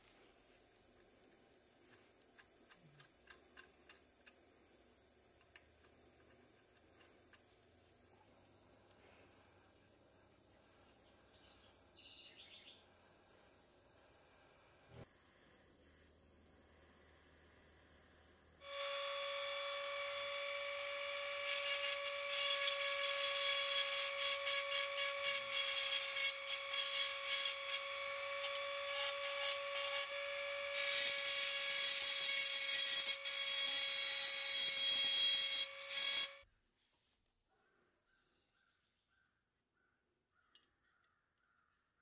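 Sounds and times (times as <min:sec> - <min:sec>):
rotary tool grinding metal: 0:18.6 - 0:36.4.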